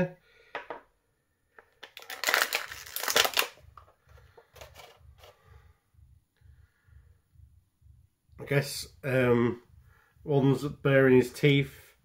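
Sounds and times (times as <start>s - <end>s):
plastic bag crinkling: 1.8s - 3.6s, 4.6s - 5.3s.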